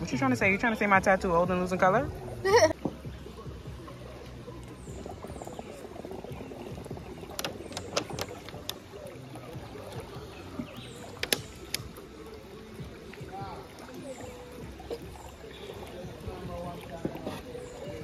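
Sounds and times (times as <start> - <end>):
quiet river water: 0.0 - 18.0
sharp clicks and knocks: 7.3 - 8.8, 11.2 - 11.9.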